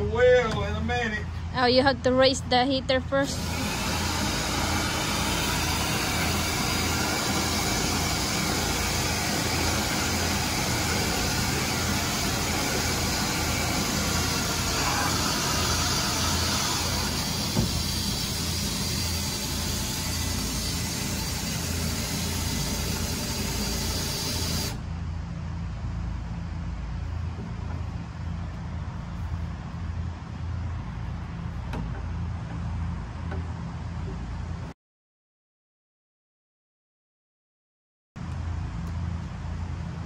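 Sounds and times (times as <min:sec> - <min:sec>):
low steady hum: 0:00.0 - 0:34.7
leaf blower running: 0:03.2 - 0:24.8.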